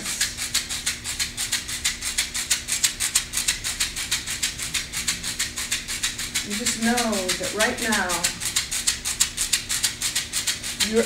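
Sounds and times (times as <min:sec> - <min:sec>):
hand rattle shaken: 0:00.0 - 0:11.0.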